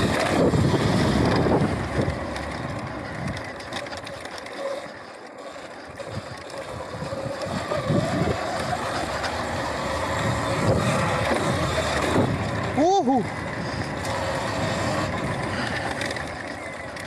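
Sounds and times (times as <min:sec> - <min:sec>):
wind on microphone: 0:00.0 - 0:02.2, 0:06.0 - 0:09.1, 0:09.8 - 0:16.0
electric motor whine: 0:00.0 - 0:17.0
rough rumble of dirt bike: 0:00.0 - 0:17.0.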